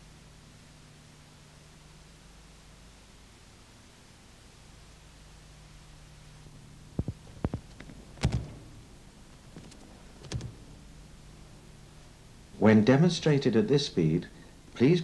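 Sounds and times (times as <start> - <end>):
low tape hum: 0.0 - 15.0
thumps of bodies on mat: 7.0 - 8.8.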